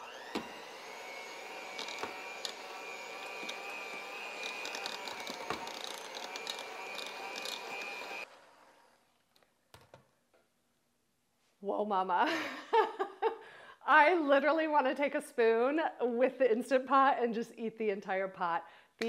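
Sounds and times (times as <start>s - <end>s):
electric hand mixer whining: 0.0s - 9.4s
mixer beaters clicking: 0.4s - 8.3s.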